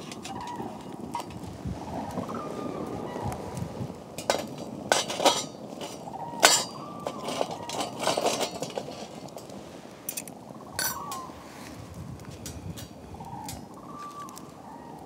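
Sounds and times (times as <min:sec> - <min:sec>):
metal stove clinking: 0:00.0 - 0:01.4, 0:04.2 - 0:11.3.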